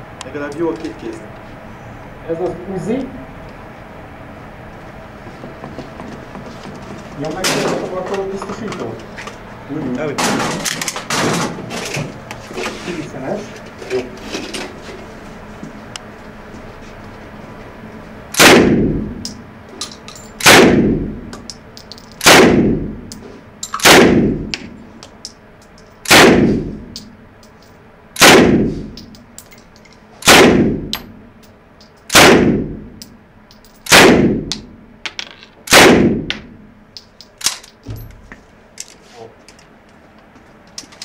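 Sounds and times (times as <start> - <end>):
submachine gun single shots: 18.3 - 19.0, 20.4 - 21.0, 22.2 - 22.8, 23.8 - 24.4, 26.0 - 26.7, 28.2 - 28.7, 30.2 - 31.0, 32.1 - 32.7, 33.9 - 34.5, 35.7 - 36.3.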